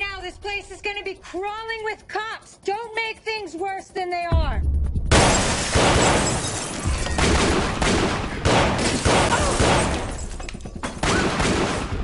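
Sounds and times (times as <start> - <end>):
dramatic music: 4.2 - 12.0
gunshots volley: 5.1 - 10.2, 11.0 - 12.0.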